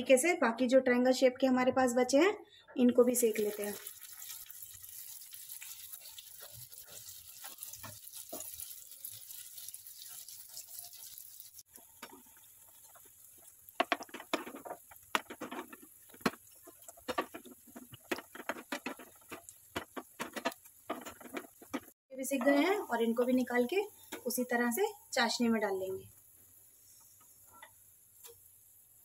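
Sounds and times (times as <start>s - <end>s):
bread sizzling in hot oil: 3.2s - 29.0s
metal spoon scraping pan: 13.8s - 22.8s.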